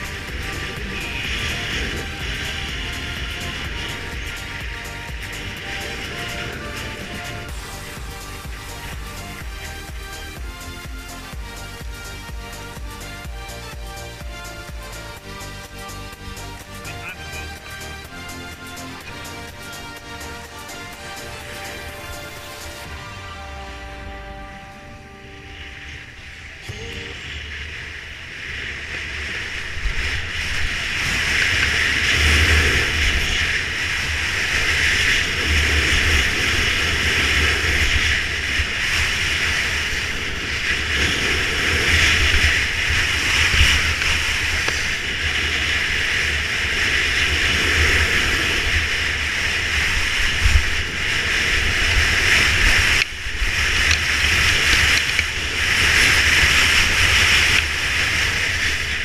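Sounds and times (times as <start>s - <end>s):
wind buffeting microphone: 0.0s - 13.0s, 24.9s - 59.0s
skis scraping over snow: 0.0s - 59.0s.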